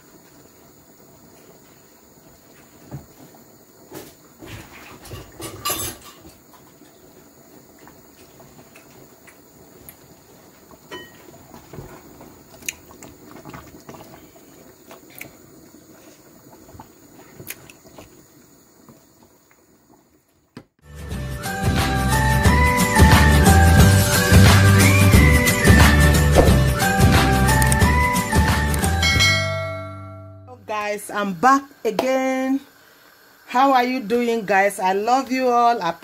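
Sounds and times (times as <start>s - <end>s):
meat cooking in liquid: 0.1s - 20.6s.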